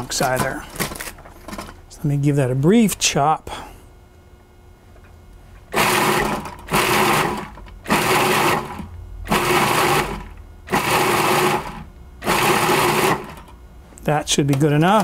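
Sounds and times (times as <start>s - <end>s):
food processor motor bursts: 5.7s - 13.5s.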